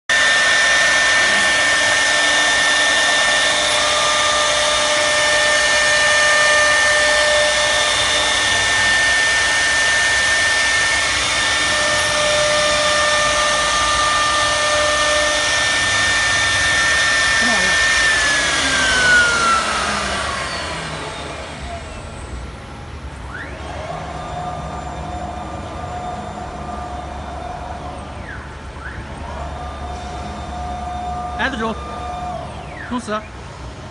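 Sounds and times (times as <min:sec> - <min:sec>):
machine hum: 0:00.1 - 0:33.9
router spindle whining: 0:00.1 - 0:33.9.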